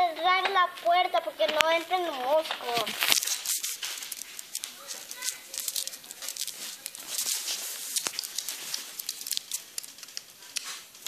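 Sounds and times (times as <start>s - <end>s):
close rustling and rubbing: 0.0s - 11.0s
small clicks and taps: 7.9s - 11.0s.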